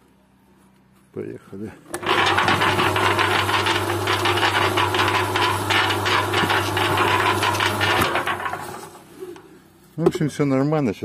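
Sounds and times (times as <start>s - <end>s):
concrete mixer running: 1.9s - 9.5s.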